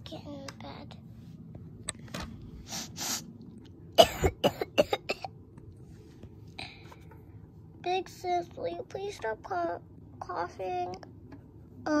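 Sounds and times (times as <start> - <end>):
child coughing: 4.0 - 5.3.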